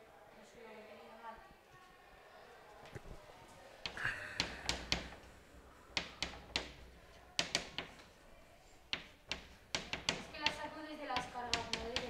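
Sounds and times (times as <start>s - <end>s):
chalk tapping on chalkboard: 3.8s - 5.3s, 5.9s - 8.1s, 8.9s - 12.0s.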